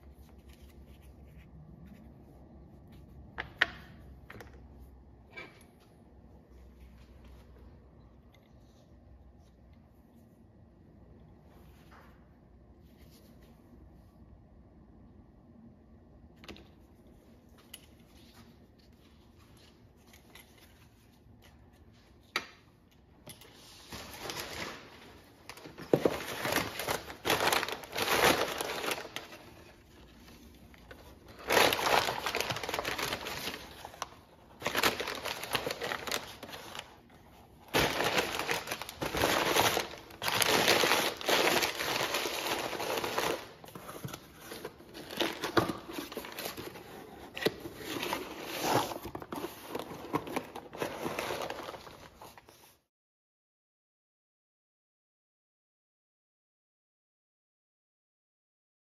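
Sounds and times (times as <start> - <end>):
packing paper crumpling: 23.7 - 43.8, 44.5 - 52.8.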